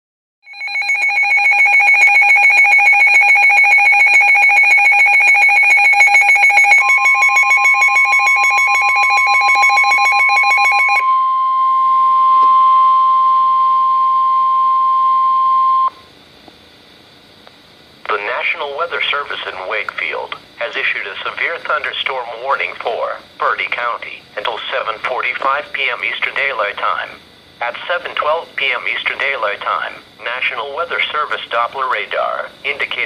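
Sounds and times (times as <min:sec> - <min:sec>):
steady alarm tone: 0:00.4 - 0:16.1
rapid two-tone alarm beeping: 0:00.5 - 0:16.0.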